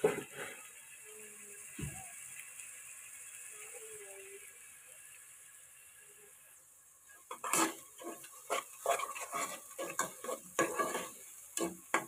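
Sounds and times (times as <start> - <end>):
spatula scraping a pan: 0.0 - 0.8, 7.3 - 12.0
onions sizzling in oil: 0.0 - 12.0.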